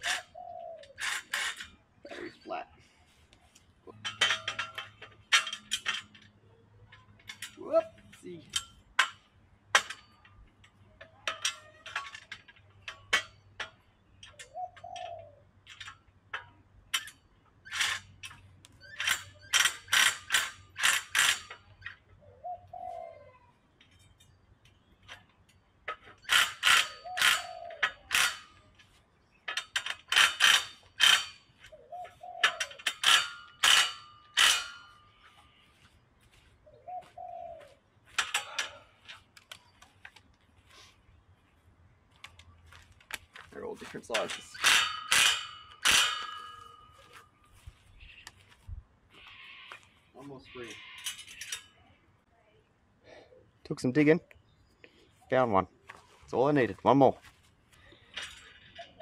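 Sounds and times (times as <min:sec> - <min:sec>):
metal bolts clinking and rattling: 0:00.0 - 0:02.3, 0:03.5 - 0:22.2, 0:23.8 - 0:35.8, 0:38.1 - 0:40.4, 0:42.1 - 0:48.3, 0:50.6 - 0:51.8, 0:56.0 - 0:59.0.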